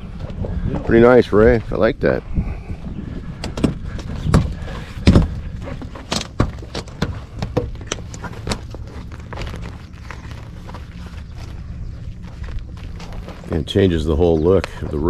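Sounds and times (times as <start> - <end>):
canvas rustling: 4.1 - 14.1.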